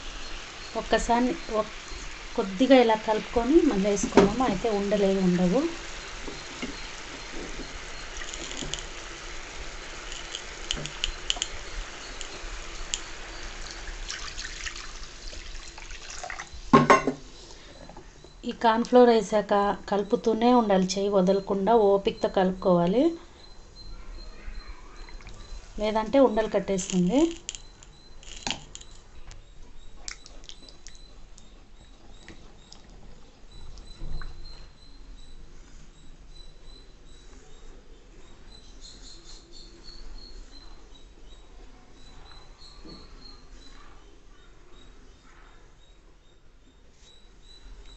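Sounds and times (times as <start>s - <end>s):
sugar syrup boiling in a pan: 0.0s - 16.8s, 25.0s - 29.0s.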